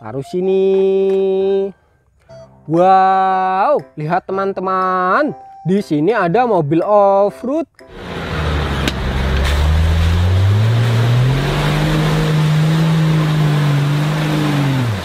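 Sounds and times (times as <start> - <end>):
off-road vehicle engine revving: 7.9 - 15.0
steady rushing noise: 7.9 - 15.0.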